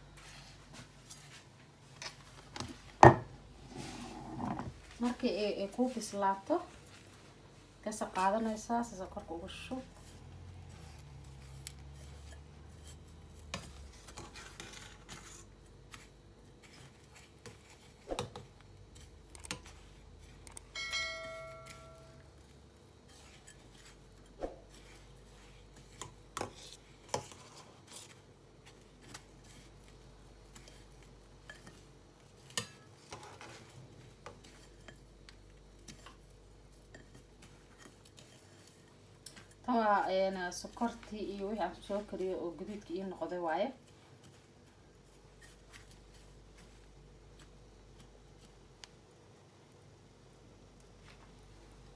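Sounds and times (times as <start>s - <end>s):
brief ringing tone: 20.8s - 22.2s.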